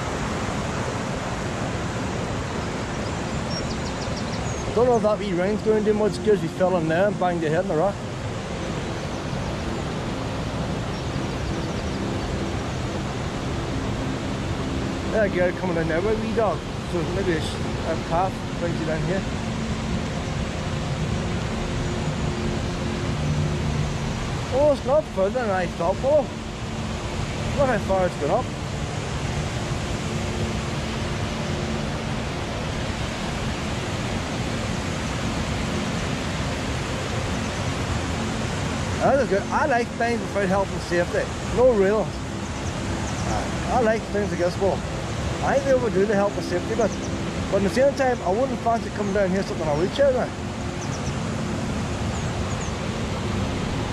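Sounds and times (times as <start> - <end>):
low waterfall: 0.0 - 53.9
river rushing over rapids: 0.0 - 53.9.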